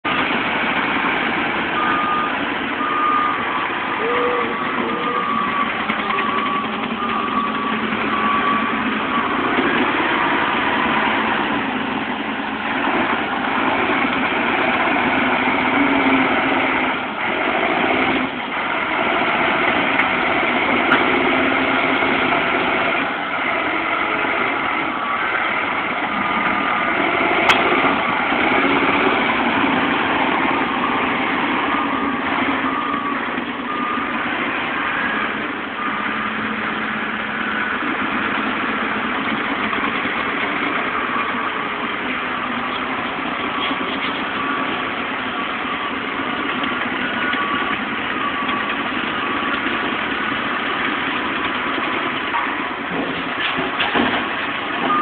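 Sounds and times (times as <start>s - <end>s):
diesel engine running: 0.0s - 55.0s
reversing alarm beeping: 1.7s - 11.6s, 19.0s - 39.1s, 40.9s - 50.6s, 54.8s - 55.0s.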